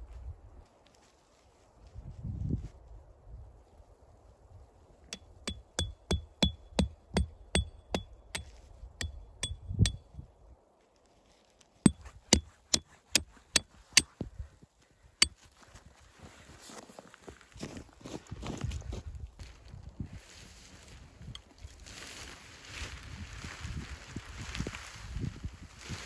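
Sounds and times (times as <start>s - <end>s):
hammer blows on metal: 5.2s - 10.0s.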